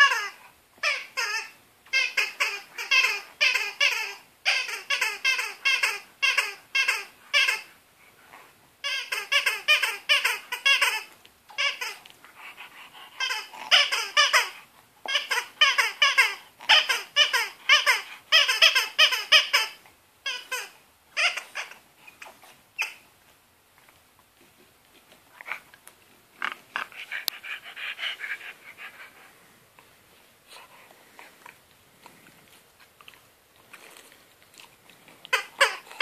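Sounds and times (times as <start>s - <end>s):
rubber toy squeaking: 0.0s - 7.7s, 8.8s - 12.0s, 13.1s - 23.1s, 35.2s - 36.0s.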